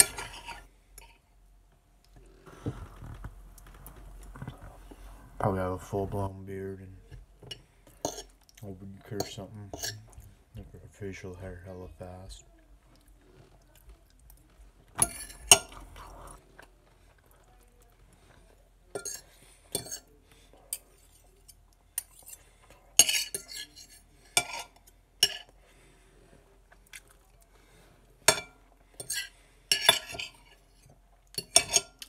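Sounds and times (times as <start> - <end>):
fork scraping a dish: 0.0 - 1.2, 7.9 - 8.4, 9.2 - 10.3, 15.0 - 16.6, 18.9 - 25.6, 28.4 - 32.0
chewing: 12.6 - 23.0, 26.3 - 28.2.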